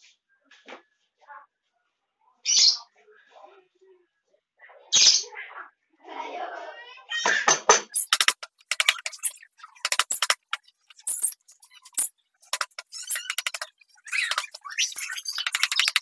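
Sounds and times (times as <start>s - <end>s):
carving blade scraping wood: 8.0s - 16.0s.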